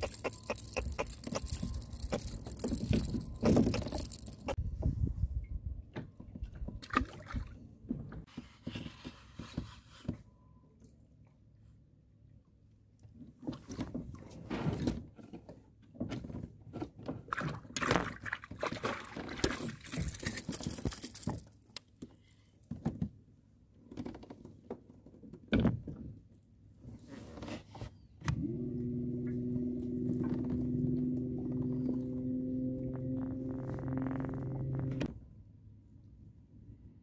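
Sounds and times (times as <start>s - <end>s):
fishing reel knocks and clicks: 0.0s - 4.6s.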